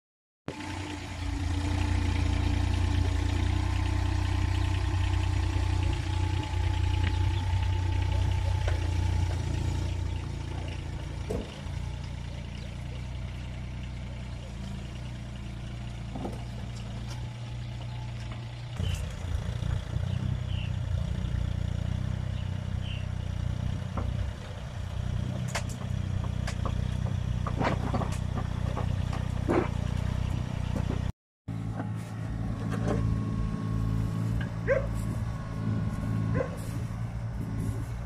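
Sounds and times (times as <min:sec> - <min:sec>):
excavator diesel engine running: 0:00.5 - 0:38.0
metal knocks and clanks: 0:25.4 - 0:31.1.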